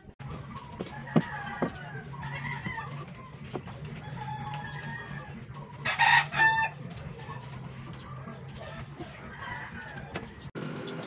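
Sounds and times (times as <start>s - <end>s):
chickens clucking: 0.2s - 11.0s
rooster crowing: 0.6s - 6.9s, 8.6s - 10.4s.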